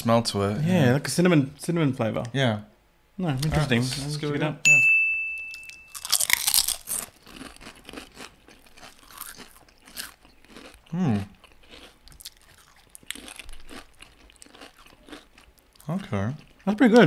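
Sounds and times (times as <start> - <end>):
chewing crisp chips: 5.9 - 17.0.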